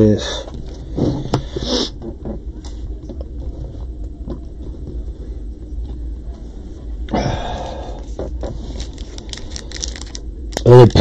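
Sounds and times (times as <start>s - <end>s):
low steady hum: 0.0s - 11.0s
foil wrapper crinkling: 8.6s - 11.0s.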